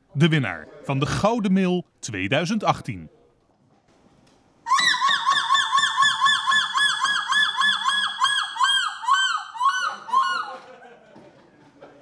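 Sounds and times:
woman imitating seagull call: 0:04.7 - 0:10.6.

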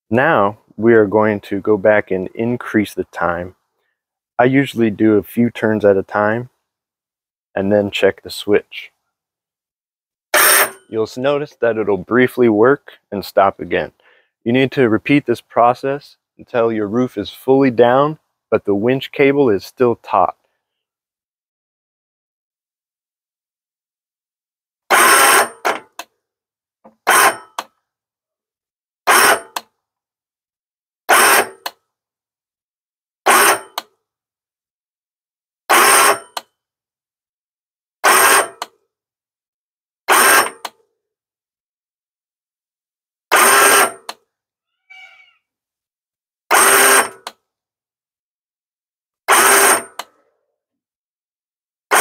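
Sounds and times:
sharp click: 0:33.4 - 0:33.9.

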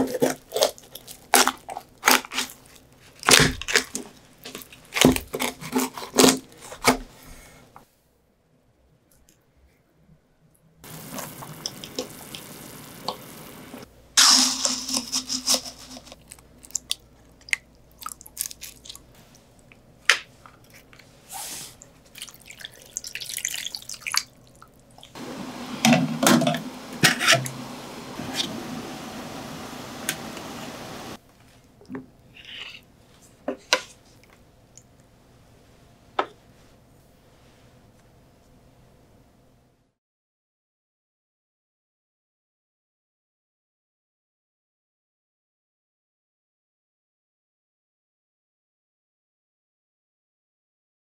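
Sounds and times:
water sloshing and dripping: 0:22.1 - 0:31.2.

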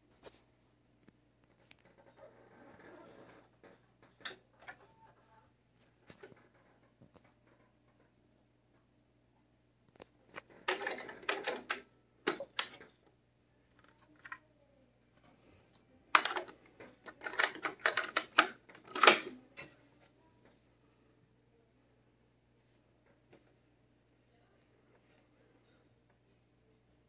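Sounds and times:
faint low hum: 0:00.0 - 0:27.0
cassette mechanism clicking: 0:10.3 - 0:12.9, 0:16.2 - 0:19.4.

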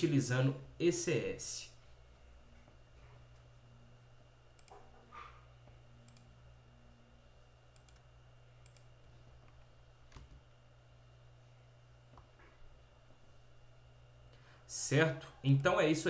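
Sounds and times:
faint steady hum: 0:00.0 - 0:16.0
computer mouse clicks: 0:04.5 - 0:04.9, 0:06.0 - 0:06.3, 0:07.7 - 0:08.9.

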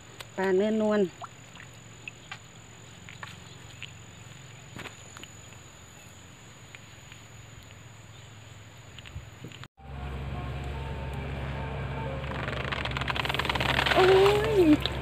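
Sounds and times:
crickets chirring: 0:00.3 - 0:09.7.

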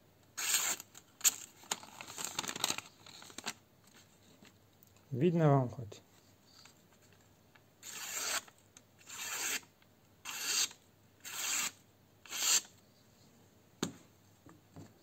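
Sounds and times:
knife slicing paper: 0:00.4 - 0:00.9, 0:07.8 - 0:09.6.

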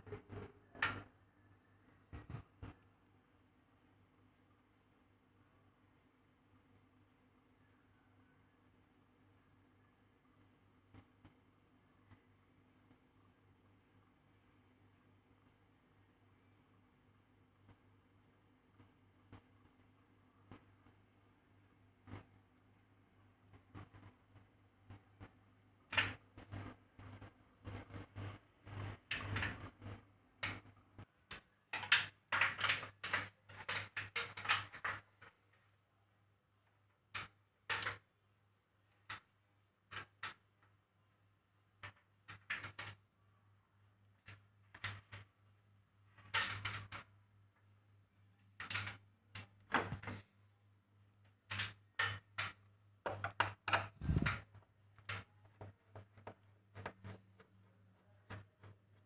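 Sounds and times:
low electrical hum: 0:00.0 - 0:59.0
rustles and knocks of handling: 0:53.0 - 0:59.0.

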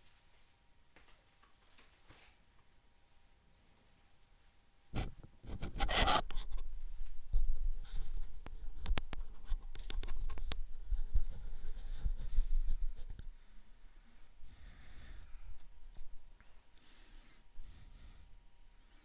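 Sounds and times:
scratching and rubbing on microphone: 0:05.0 - 0:13.3.

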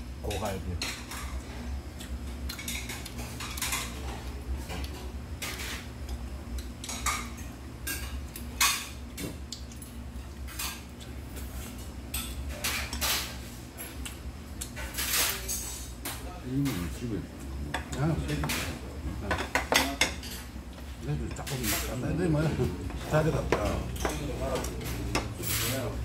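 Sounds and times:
chopsticks tapping on plates: 0:17.7 - 0:25.4.

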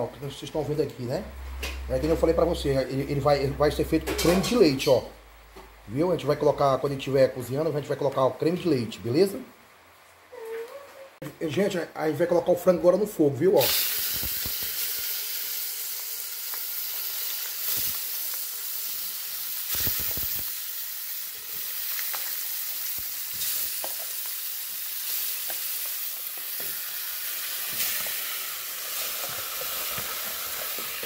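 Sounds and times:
chicken sizzling in a pot: 0:13.6 - 0:31.0.

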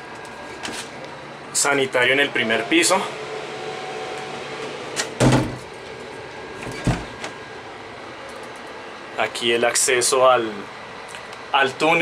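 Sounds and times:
door knocking shut: 0:05.2 - 0:05.6.

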